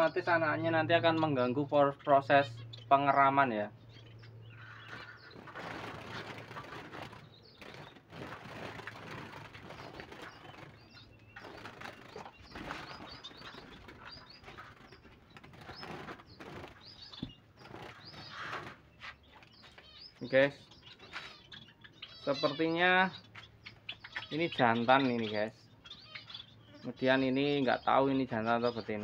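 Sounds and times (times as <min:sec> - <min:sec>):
birds fluttering wings: 0:04.7 - 0:19.9.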